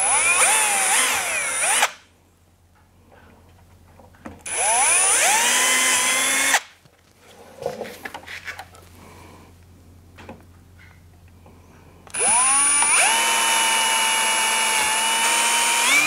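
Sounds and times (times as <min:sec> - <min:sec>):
power drill drilling plastic: 0:04.5 - 0:06.6, 0:12.1 - 0:16.0.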